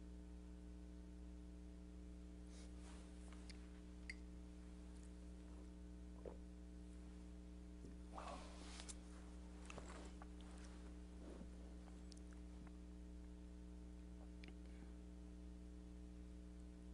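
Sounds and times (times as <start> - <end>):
steady electrical hum: 0.0 - 16.9
faint soft clicks and rustles: 2.6 - 4.2, 8.6 - 13.3.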